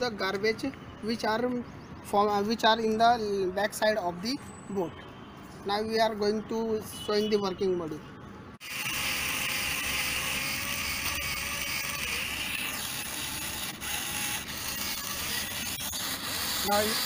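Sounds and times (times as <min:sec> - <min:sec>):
small motors whirring: 0:08.6 - 0:17.0.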